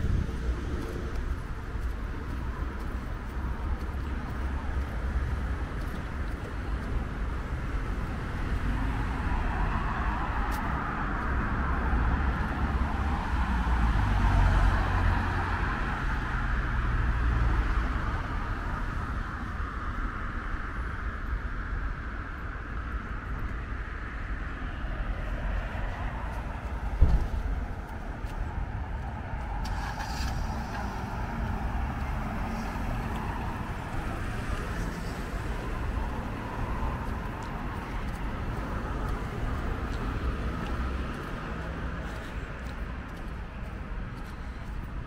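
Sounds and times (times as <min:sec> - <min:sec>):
road traffic noise: 0:00.0 - 0:45.0
thump: 0:26.9 - 0:27.5.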